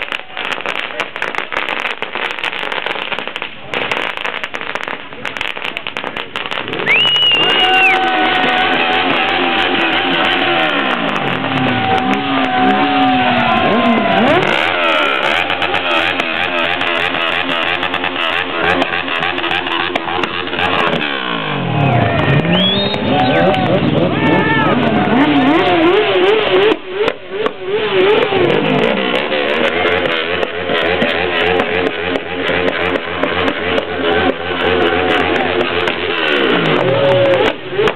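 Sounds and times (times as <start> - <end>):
crowd and traffic din: 0.0 - 37.9
motorcycle engines revving: 0.0 - 37.9
sharp engine pops: 0.1 - 12.7, 35.2 - 37.9.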